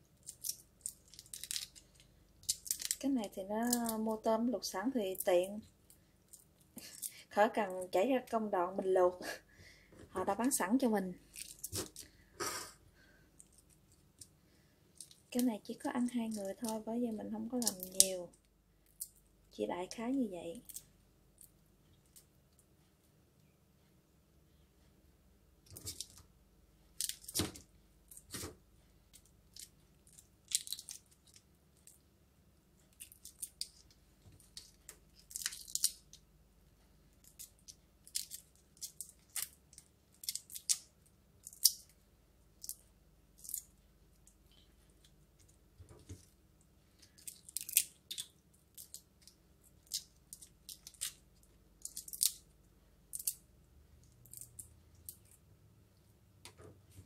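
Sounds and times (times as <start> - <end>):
shrimp shells crackling: 0.2 - 4.3, 11.2 - 12.1, 15.0 - 16.9, 17.5 - 18.2, 29.2 - 32.0, 32.9 - 36.2, 37.2 - 41.9, 47.0 - 52.5, 53.1 - 53.4, 54.0 - 55.4.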